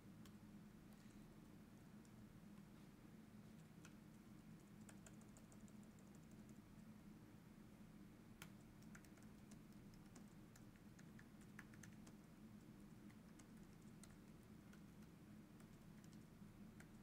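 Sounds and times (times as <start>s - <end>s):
low steady hum: 0.0s - 17.0s
typing on computer keyboard: 4.6s - 6.6s, 8.4s - 12.3s, 13.1s - 17.0s.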